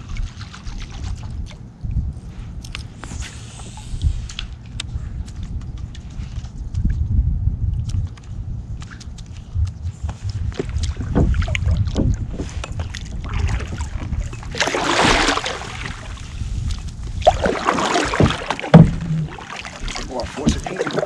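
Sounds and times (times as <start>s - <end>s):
water splashing: 0.0s - 1.7s, 8.8s - 21.0s
low rumble: 0.0s - 21.0s
knocks against kayak hull: 18.0s - 20.7s.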